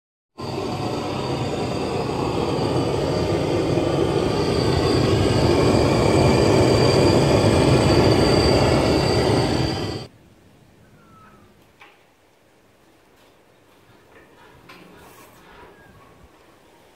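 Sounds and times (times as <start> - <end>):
blowtorch flame roaring: 0.4 - 10.1.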